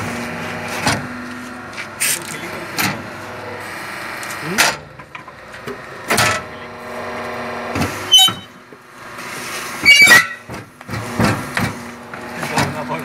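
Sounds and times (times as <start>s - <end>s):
machine motor hum: 0.0s - 9.8s.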